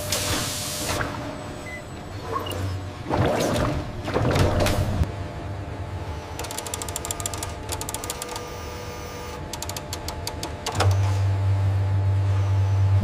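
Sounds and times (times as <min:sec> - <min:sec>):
machine mechanism clicking: 0:06.4 - 0:08.5, 0:09.4 - 0:11.0
loud low hum: 0:10.2 - 0:13.0.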